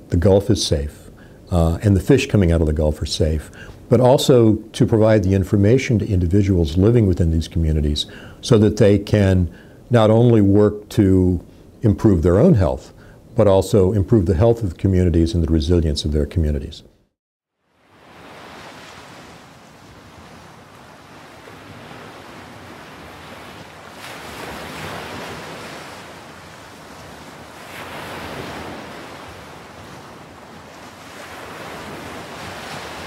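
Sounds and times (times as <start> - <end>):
ocean waves washing in: 17.6 - 33.0.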